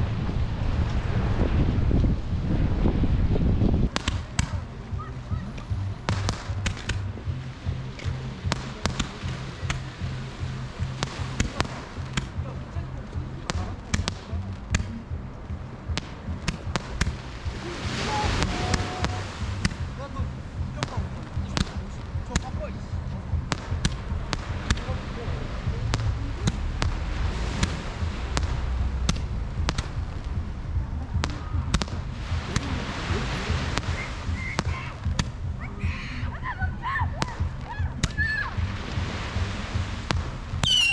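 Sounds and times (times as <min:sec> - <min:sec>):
faint background music: 0:00.0 - 0:40.9
sea rushing: 0:00.0 - 0:40.9
fireworks cracking and banging: 0:03.9 - 0:04.6, 0:06.0 - 0:07.1, 0:08.0 - 0:10.1, 0:10.7 - 0:12.6, 0:15.8 - 0:35.5.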